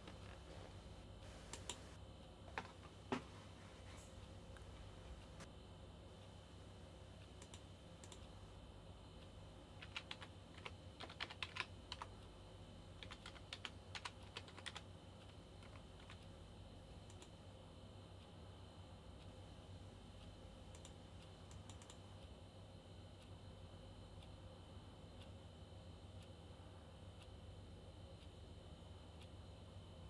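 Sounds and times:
faint steady hum: 0.0 - 30.0
typing on computer keyboard: 9.8 - 12.2, 13.0 - 16.2.

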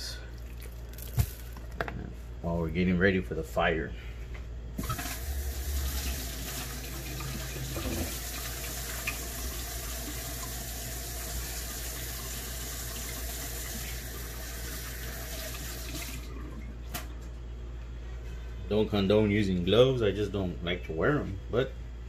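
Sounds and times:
tap water running into sink: 4.8 - 16.3.

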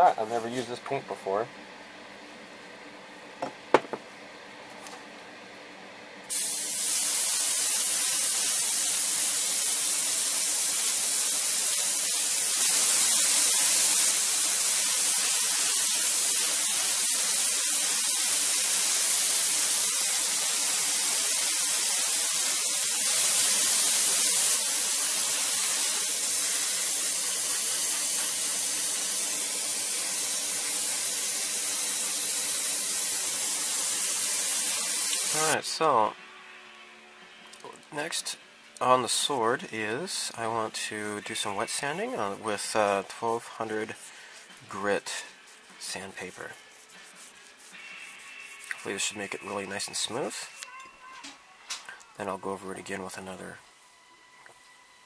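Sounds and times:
airbrush spraying hiss: 6.3 - 35.6, 41.4 - 50.6.

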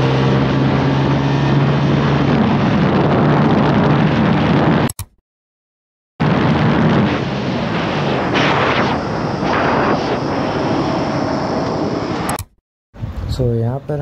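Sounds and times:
motorcycle engine at high revs: 0.0 - 2.6
wind rushing over microphone: 0.0 - 4.9, 6.2 - 12.4, 13.0 - 13.9.

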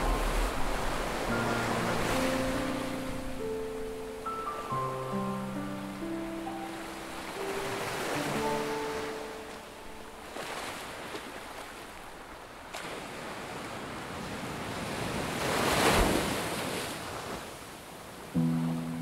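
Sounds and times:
sustained music notes: 0.0 - 10.4, 18.4 - 19.0
ocean surf on beach: 0.0 - 19.0.

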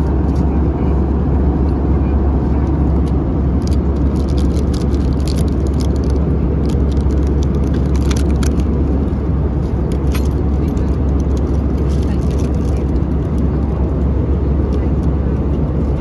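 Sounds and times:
airplane cabin rumble: 0.0 - 16.0
plastic bag crinkling: 3.6 - 8.7.

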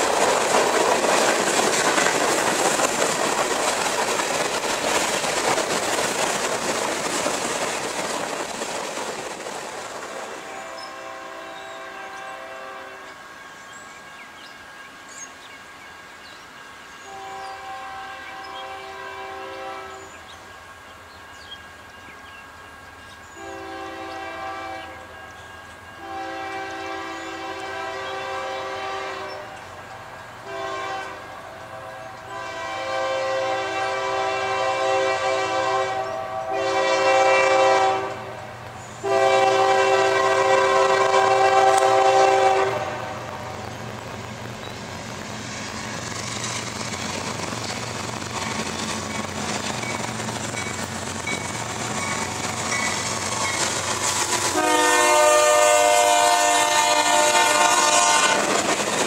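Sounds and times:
train wheels rumbling on rails: 0.0 - 59.0
locomotive air horn blasts: 10.4 - 13.3, 17.1 - 20.2, 23.4 - 25.1, 26.0 - 29.6, 30.4 - 43.5, 54.5 - 58.6.

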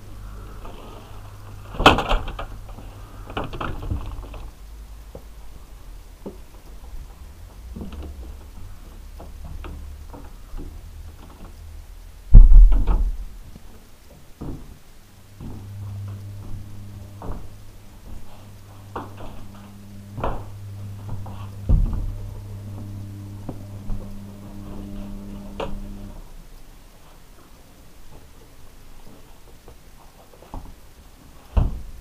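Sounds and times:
steady low hum: 0.0 - 32.0
heavy thump: 12.3 - 13.3, 15.4 - 24.3
knocks and bumps: 12.3 - 13.4, 15.4 - 26.0.

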